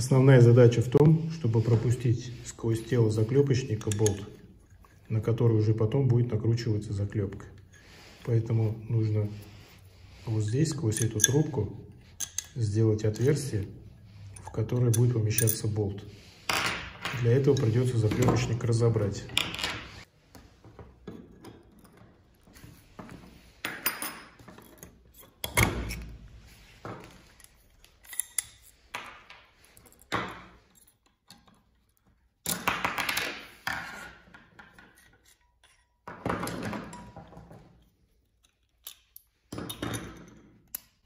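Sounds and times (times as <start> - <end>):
metal tool parts clinking: 2.8 - 5.3, 10.4 - 13.6, 14.2 - 15.8, 16.5 - 18.5, 27.3 - 28.9, 38.3 - 41.0.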